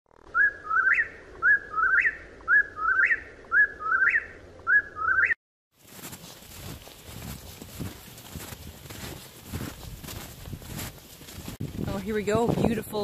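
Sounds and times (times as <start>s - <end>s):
whip-poor-will whistled song: 0.3s - 5.4s.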